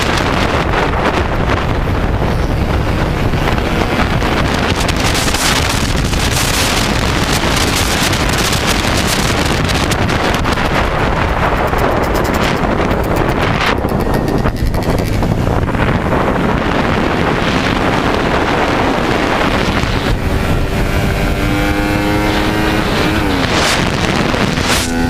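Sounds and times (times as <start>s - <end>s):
motorcycle engine: 0.0s - 25.0s
wind buffeting microphone: 0.0s - 25.0s.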